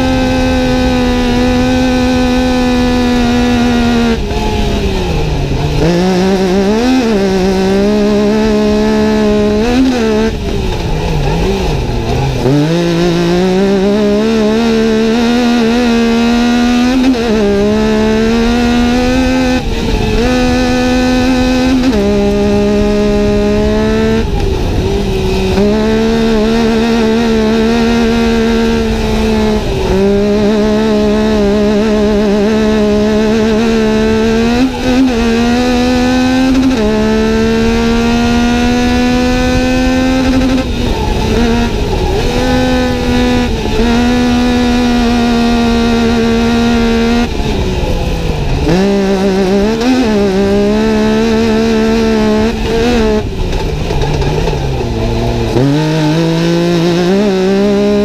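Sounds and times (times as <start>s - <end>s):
engine accelerating hard: 0.0s - 58.0s
tyres rumbling on dirt: 0.0s - 58.0s.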